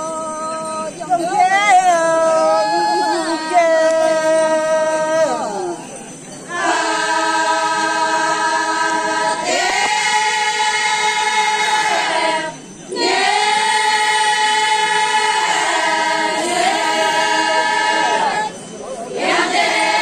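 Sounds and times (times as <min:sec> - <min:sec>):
women singing together: 0:06.5 - 0:20.0.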